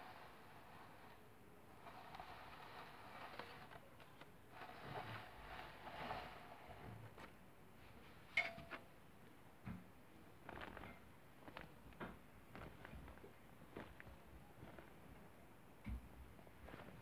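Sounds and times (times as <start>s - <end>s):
paper rustling and scraping: 0.0s - 7.4s.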